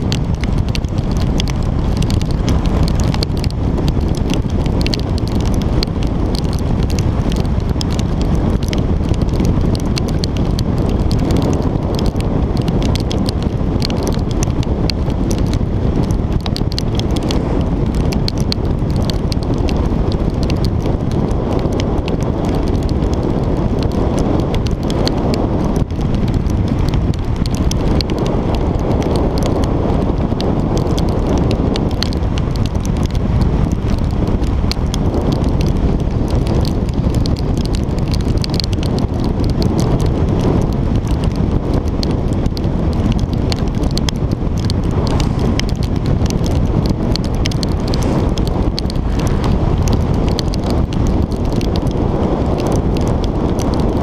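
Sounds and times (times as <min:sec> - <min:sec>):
raindrops crackling on camera: 0:00.0 - 0:54.0
wind buffeting microphone: 0:00.0 - 0:54.0.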